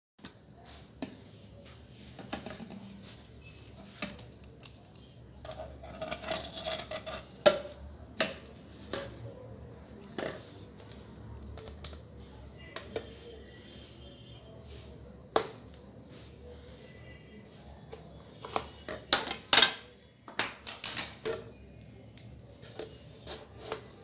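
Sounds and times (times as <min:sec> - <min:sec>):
knife scraping plastic: 0:22.6 - 0:24.0.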